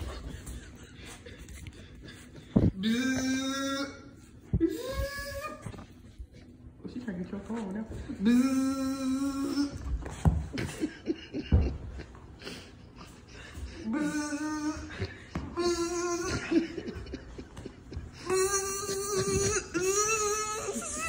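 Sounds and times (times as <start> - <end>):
person making buzzing sounds: 1.4 - 5.8, 8.2 - 10.1, 18.0 - 21.0.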